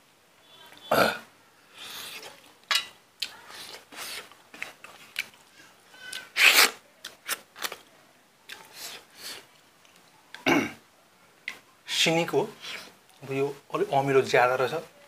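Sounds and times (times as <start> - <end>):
chewing and mouth smacks: 3.2 - 6.3.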